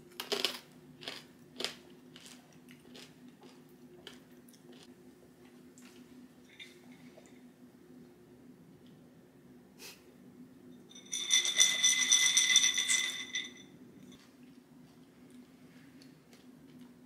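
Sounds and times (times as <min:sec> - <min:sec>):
almonds rattling on ceramic plate: 0:11.0 - 0:13.6
plate ringing: 0:11.0 - 0:13.7.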